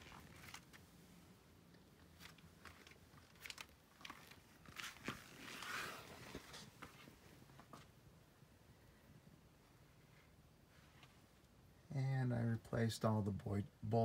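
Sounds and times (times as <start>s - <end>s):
crunchy rustling: 0.0s - 0.9s, 2.0s - 7.2s.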